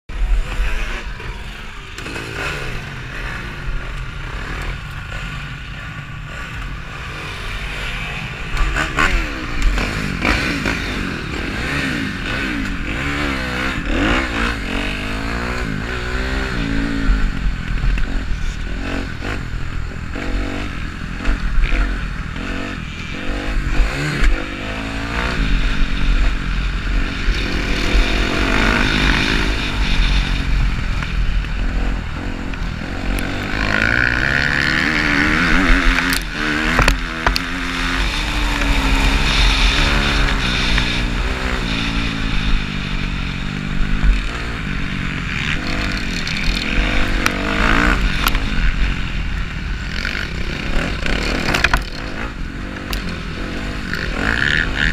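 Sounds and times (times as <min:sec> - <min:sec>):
motocross bike engine revving: 0:00.1 - 0:54.9.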